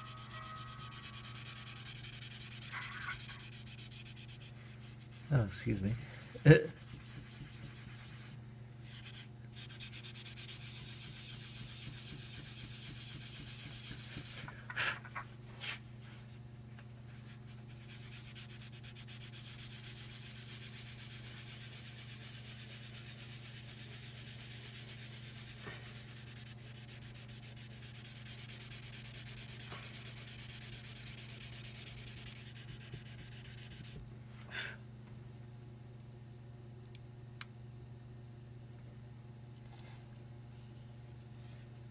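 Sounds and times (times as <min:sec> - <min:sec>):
pencil scratching on paper: 0:00.0 - 0:05.4, 0:06.7 - 0:14.5, 0:17.6 - 0:34.0
low electrical hum: 0:00.0 - 0:41.9.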